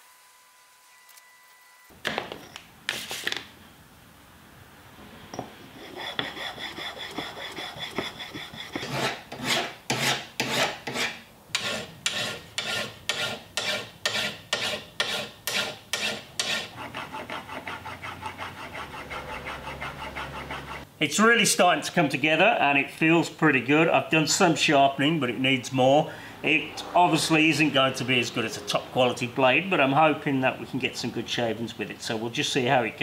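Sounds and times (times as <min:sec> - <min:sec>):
file scraping steel blade: 0:05.4 - 0:20.9
blade rubbing on sharpening surface: 0:05.7 - 0:20.9.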